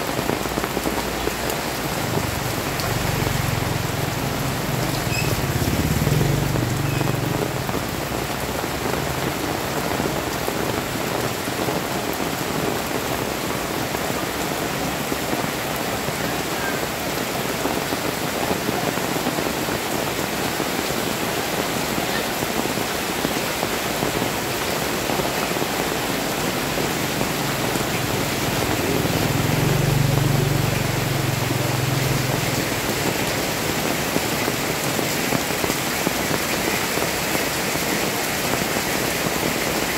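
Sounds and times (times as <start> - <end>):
heavy rain on street: 0.0 - 39.9
motor scooter passing: 2.1 - 7.8, 26.5 - 33.8.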